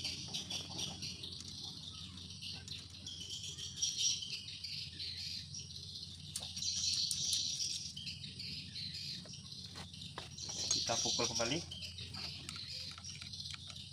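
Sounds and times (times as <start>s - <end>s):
insects chirring: 0.0s - 13.9s
metal parts clicking: 12.4s - 13.9s.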